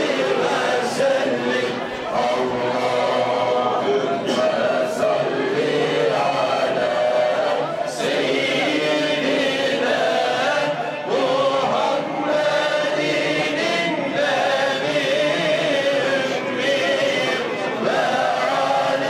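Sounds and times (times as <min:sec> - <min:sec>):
men chanting in chorus: 0:00.0 - 0:19.0.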